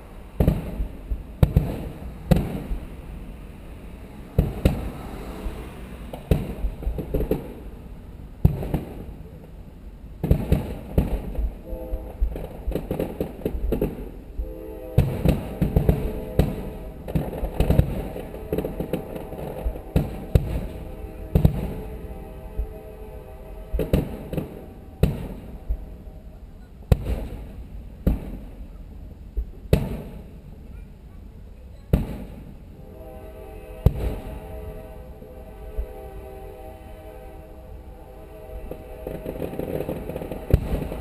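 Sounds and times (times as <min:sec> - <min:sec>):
fireworks bursting: 0:00.0 - 0:03.4, 0:04.2 - 0:09.6, 0:10.2 - 0:28.8, 0:29.4 - 0:30.8, 0:31.7 - 0:32.6, 0:33.7 - 0:34.9, 0:38.4 - 0:41.0
firework booms: 0:00.4 - 0:03.0, 0:04.3 - 0:05.0, 0:06.1 - 0:07.7, 0:08.4 - 0:09.2, 0:10.2 - 0:14.2, 0:14.9 - 0:22.7, 0:23.7 - 0:26.0, 0:26.8 - 0:28.6, 0:29.4 - 0:30.4, 0:31.9 - 0:32.6, 0:33.8 - 0:34.4, 0:38.7 - 0:41.0.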